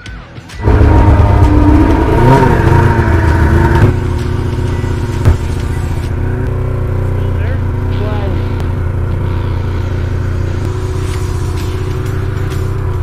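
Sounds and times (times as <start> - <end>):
snowmobile engine revving: 0.6 - 13.0.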